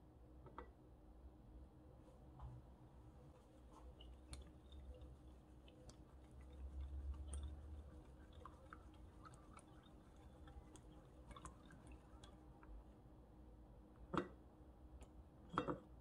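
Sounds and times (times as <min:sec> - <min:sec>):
wet squishing of beaten eggs: 0:03.2 - 0:12.9.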